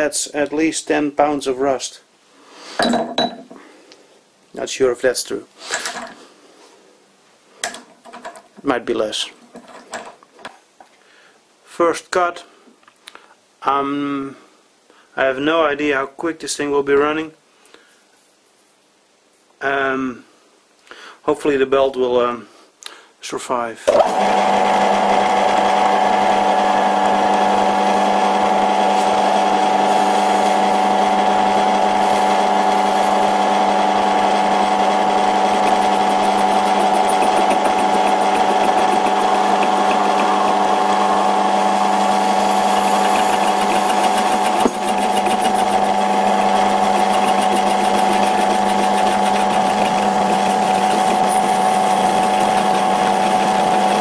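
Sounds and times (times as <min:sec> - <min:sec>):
lathe tool cutting metal: 0:23.9 - 0:54.0
metal lathe humming and whining: 0:23.9 - 0:54.0.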